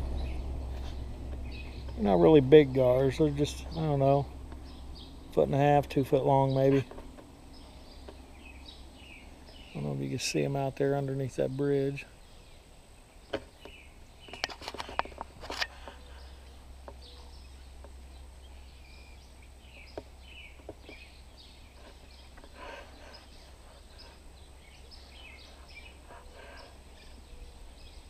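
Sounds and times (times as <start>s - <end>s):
low rumble: 0.0s - 9.6s
bird chirps: 0.0s - 10.1s, 11.4s - 28.0s.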